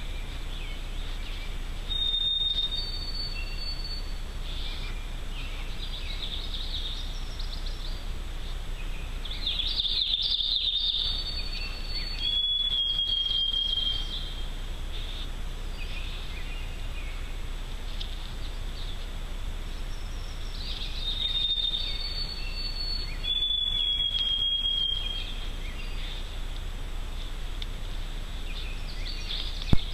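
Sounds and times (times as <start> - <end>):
songbird whistling long notes: 0.0 - 8.0, 8.8 - 17.3, 19.7 - 26.3
faint bird chirps: 0.0 - 8.1, 8.8 - 26.4
steady low hiss: 0.0 - 29.9.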